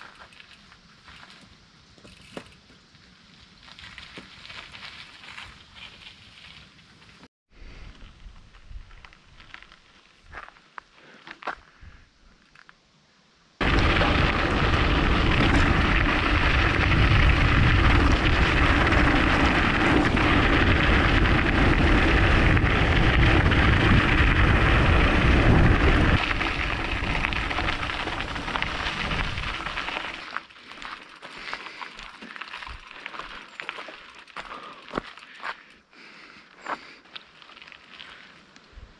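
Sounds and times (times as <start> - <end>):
wind buffeting the microphone: 13.6 - 30.0.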